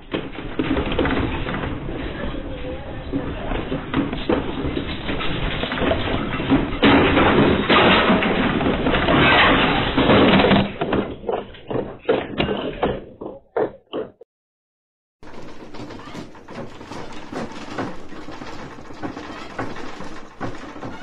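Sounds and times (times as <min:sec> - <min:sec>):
house rumbling and rattling in earthquake: 0:00.0 - 0:14.1, 0:15.2 - 0:21.0
knocks and rattles: 0:00.0 - 0:14.2, 0:15.2 - 0:21.0.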